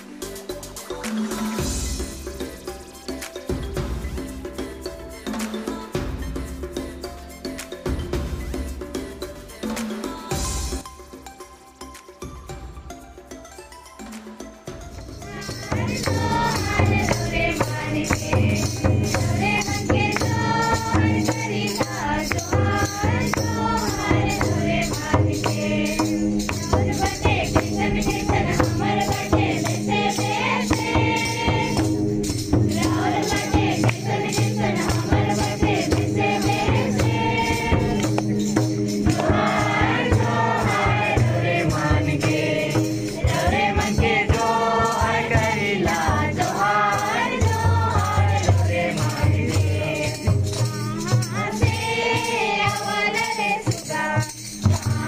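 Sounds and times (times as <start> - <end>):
hand clappers and rattles: 0.7 - 6.0, 15.3 - 55.0
girls singing together: 15.3 - 32.0, 32.7 - 38.2, 39.1 - 55.0.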